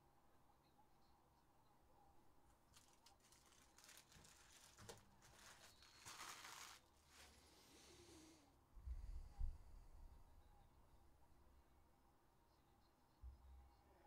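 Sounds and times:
packaging crinkle: 2.5s - 7.6s
cards rustling and clicking: 2.7s - 7.4s.

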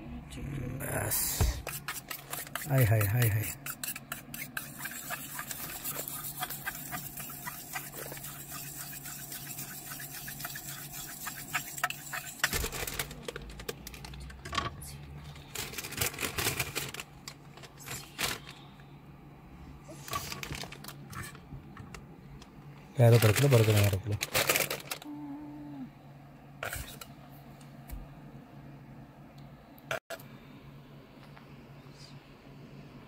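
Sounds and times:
steady low hum: 0.0s - 33.0s
utensil scraping sauce on buns: 1.1s - 12.5s
clicks and knocks of food handling: 12.5s - 14.7s.

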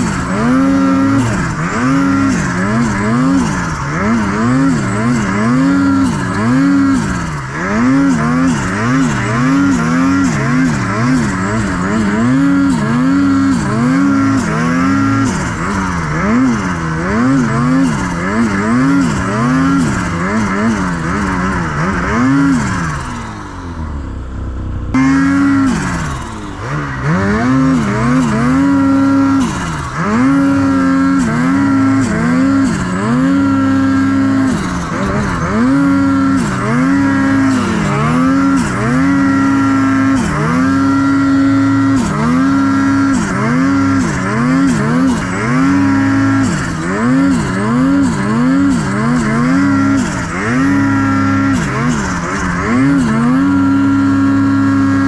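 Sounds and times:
snowmobile engine revving: 0.0s - 55.0s.

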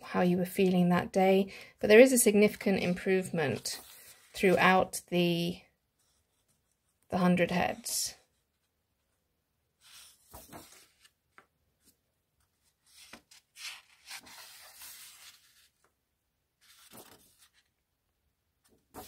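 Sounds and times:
paper pages rustling: 2.8s - 4.8s, 9.8s - 16.0s, 16.6s - 17.8s, 18.6s - 19.0s.

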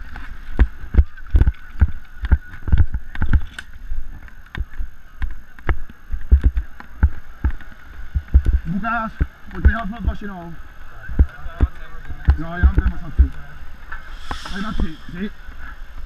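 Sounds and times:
faint steady whine: 0.0s - 16.0s
camera thumps from running strides: 0.2s - 3.8s, 4.6s - 10.3s.

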